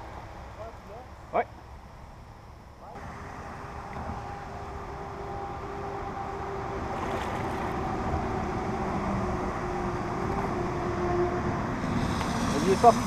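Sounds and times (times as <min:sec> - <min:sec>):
low wind: 0:00.0 - 0:13.0
small boat motor humming: 0:02.9 - 0:13.0
water rumble: 0:03.0 - 0:09.8.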